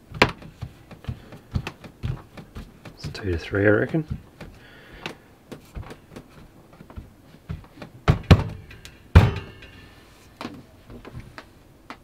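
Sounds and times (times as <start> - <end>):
hands patting dough: 0.0 - 9.4.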